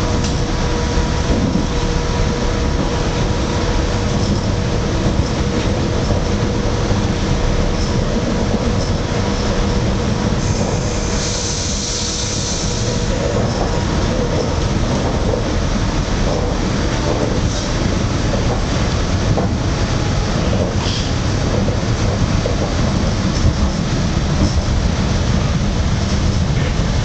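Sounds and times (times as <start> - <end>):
train wheels rumbling on rails: 0.0 - 27.0
rush of hiss: 10.4 - 13.2.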